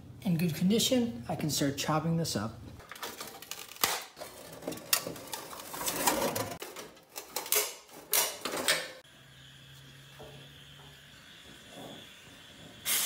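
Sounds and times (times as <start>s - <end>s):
metal tearing: 2.8s - 8.4s
torch flame hissing: 9.6s - 13.0s.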